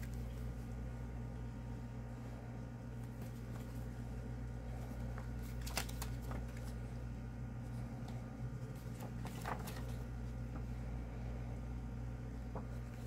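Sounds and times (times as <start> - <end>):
book pages rustling and flipping: 0.0 - 0.7, 2.9 - 10.8, 12.4 - 13.0
steady low hum: 0.0 - 13.0.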